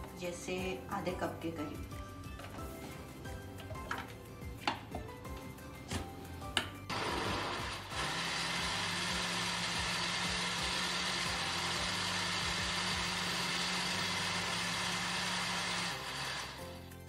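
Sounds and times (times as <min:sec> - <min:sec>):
blender motor running: 0:06.9 - 0:17.0.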